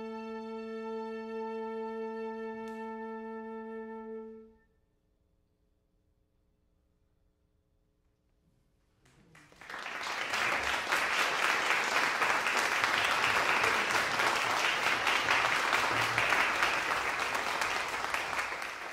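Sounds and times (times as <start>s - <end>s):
audience applause: 9.1s - 18.9s.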